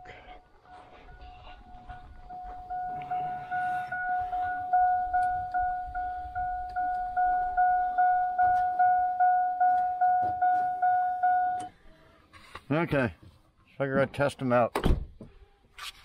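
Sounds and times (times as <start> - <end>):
car warning chime bonging: 0.0 - 11.7.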